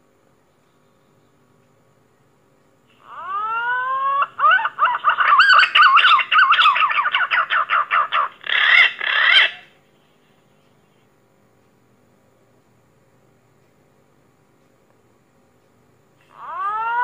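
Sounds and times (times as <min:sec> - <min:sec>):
pigeon whistling song: 0:04.4 - 0:09.7.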